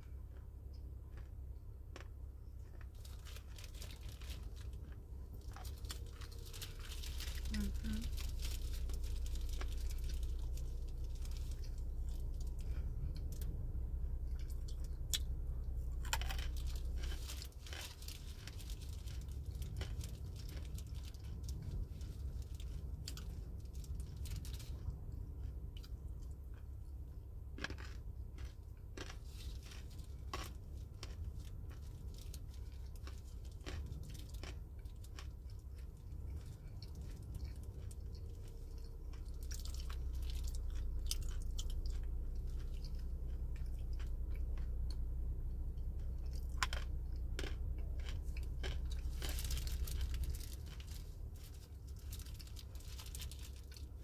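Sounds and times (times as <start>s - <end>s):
chewing crunchy food: 0.0s - 54.0s
steady low hum: 0.0s - 54.0s
sharp crunches and crackles: 1.1s - 13.5s, 14.2s - 26.6s, 27.5s - 45.1s, 45.7s - 54.0s.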